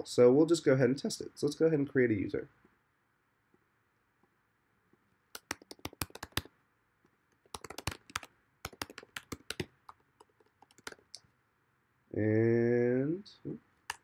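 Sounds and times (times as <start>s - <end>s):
typing on a computer keyboard: 5.4s - 6.5s, 7.4s - 11.2s.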